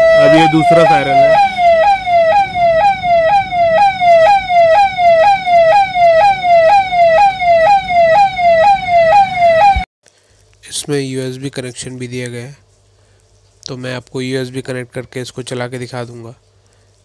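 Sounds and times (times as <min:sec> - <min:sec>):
electronic yelp siren: 0:00.0 - 0:09.9.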